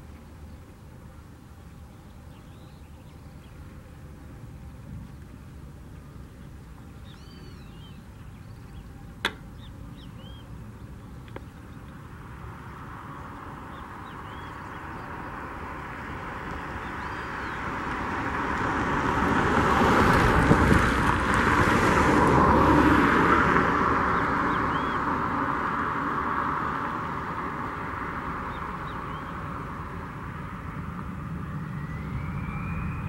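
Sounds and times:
jet engines roaring at takeoff: 15.2 - 33.0.

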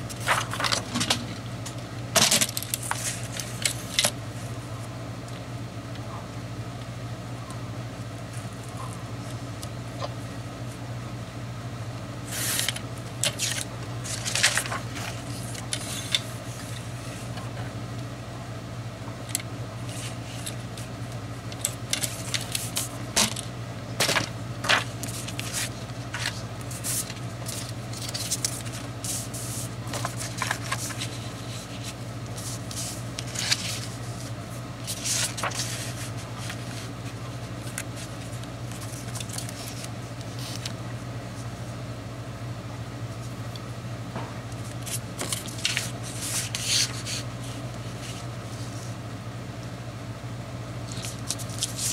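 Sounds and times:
steady low hum: 0.0 - 51.9
paper rustling and sliding: 0.1 - 1.3, 2.2 - 4.1, 12.2 - 17.4, 19.8 - 20.9, 21.6 - 40.8, 44.6 - 48.9, 50.9 - 51.9.

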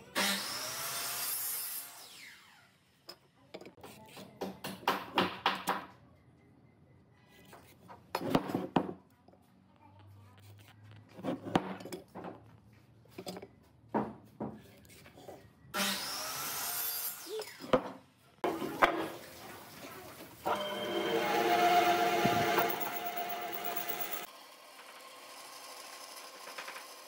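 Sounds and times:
band saw running: 20.4 - 26.8.

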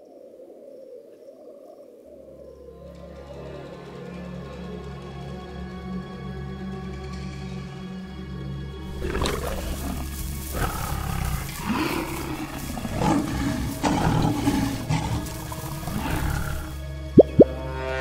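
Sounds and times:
background music: 2.4 - 18.0
tiger roaring: 8.9 - 17.5.

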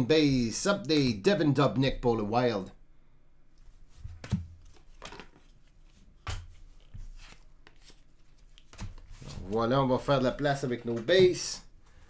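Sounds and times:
cards sliding: 4.0 - 9.7
trading cards tapping and rustling: 4.0 - 11.7.

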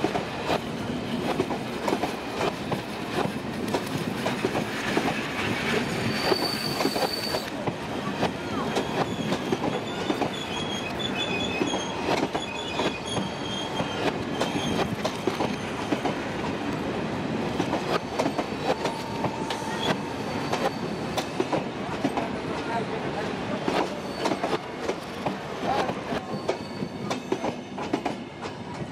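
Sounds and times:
steady squeal tone: 5.7 - 7.5, 8.6 - 15.8, 18.2 - 21.4, 26.2 - 27.6
high wheel squeals: 5.8 - 7.5, 8.5 - 15.8, 18.3 - 21.4, 23.9 - 24.6, 26.2 - 27.7
train wheels clicking over rail joints: 23.6 - 28.9.

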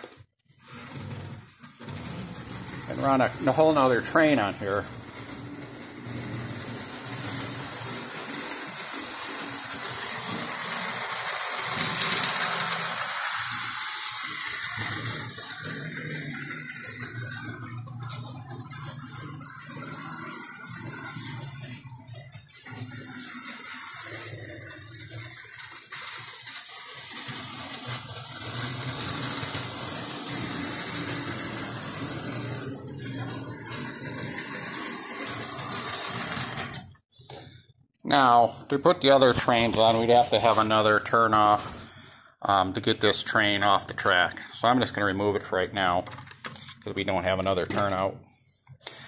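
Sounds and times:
model train motor whirring: 0.6 - 37.0
wheels rumbling on rails: 0.8 - 36.9.

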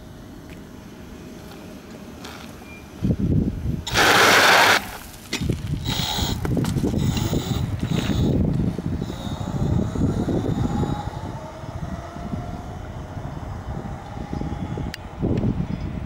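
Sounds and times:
spraying dust and gravel hiss: 3.8 - 9.4
tyre rumbling on road: 3.8 - 16.0
tyre spinning on gravel: 3.9 - 5.8.

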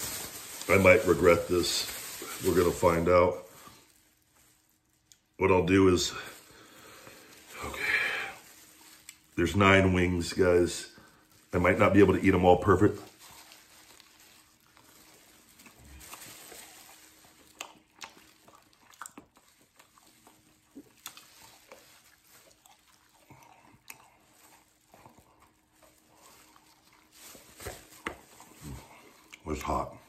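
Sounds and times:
small crackles of chewing: 0.0 - 30.0
person chewing wetly: 8.4 - 9.3, 13.1 - 29.5.

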